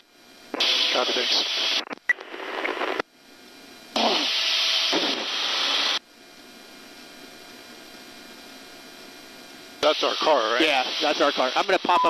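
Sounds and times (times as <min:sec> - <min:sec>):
police radio static burst: 0:00.6 - 0:03.0, 0:03.9 - 0:06.0, 0:09.8 - 0:12.0.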